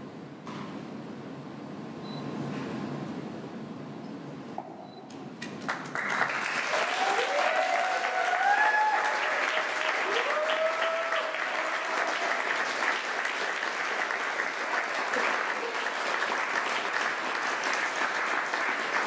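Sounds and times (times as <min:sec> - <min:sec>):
audience applauding: 0:05.4 - 0:19.0
people whooping: 0:06.5 - 0:12.9.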